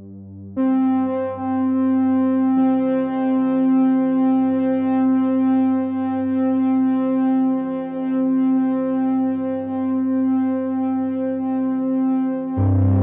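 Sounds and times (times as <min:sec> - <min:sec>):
synthesizer drone: 0:12.5 - 0:13.0.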